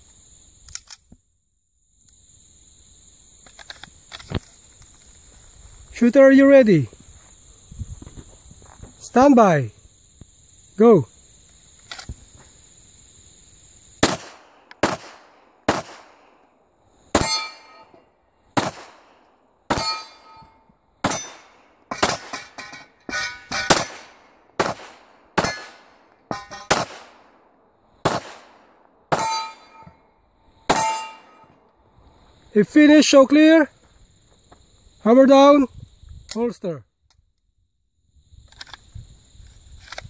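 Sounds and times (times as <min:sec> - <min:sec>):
pistol shots: 0:14.0 - 0:16.4, 0:17.1 - 0:17.9, 0:18.6 - 0:20.3, 0:21.0 - 0:22.6, 0:23.4 - 0:27.4, 0:28.0 - 0:29.7, 0:30.7 - 0:31.3
metallic ring of steel targets: 0:17.2 - 0:18.0, 0:19.7 - 0:24.0, 0:25.4 - 0:26.9, 0:29.1 - 0:30.0, 0:30.7 - 0:31.5.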